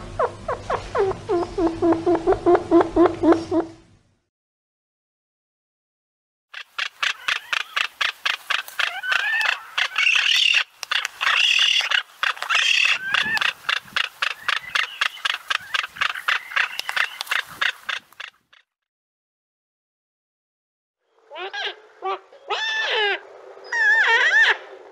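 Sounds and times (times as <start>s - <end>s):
bird warbling calls: 0.1s - 3.7s, 6.6s - 18.7s, 21.2s - 24.8s.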